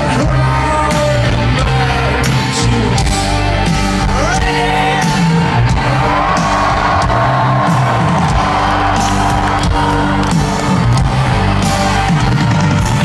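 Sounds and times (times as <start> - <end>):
person singing: 0.0 - 7.0
crowd shouting and whooping: 0.0 - 13.0
live rock band playing: 0.0 - 13.0.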